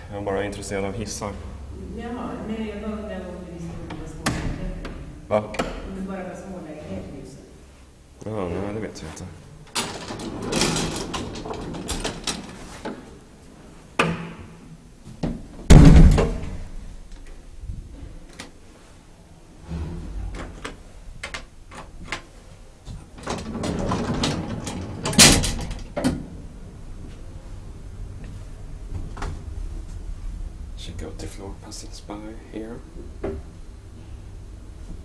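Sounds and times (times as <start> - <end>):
elevator doors clicking and rattling: 9.7 - 13.0, 22.9 - 26.7
elevator door slamming: 15.7 - 16.6, 23.2 - 26.5
loud knock: 15.7 - 16.6.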